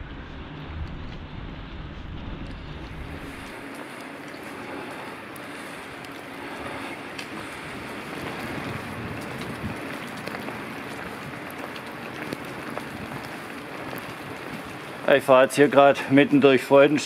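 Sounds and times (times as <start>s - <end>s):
wind on microphone: 0.0s - 15.1s
tyre hiss on wet paving: 3.0s - 17.0s.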